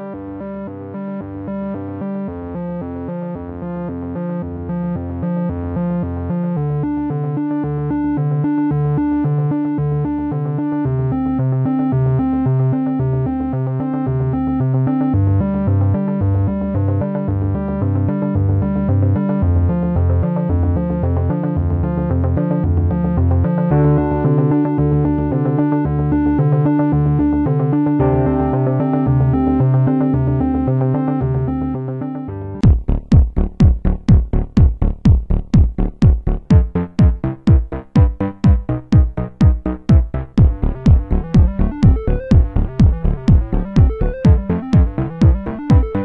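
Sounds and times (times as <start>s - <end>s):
synthesizer music with pulsing rhythm: 0.0s - 46.0s.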